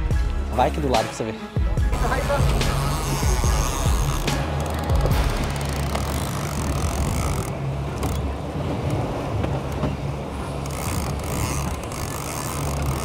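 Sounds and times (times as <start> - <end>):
boat engine humming: 0.0 - 13.0
wind: 0.0 - 13.0.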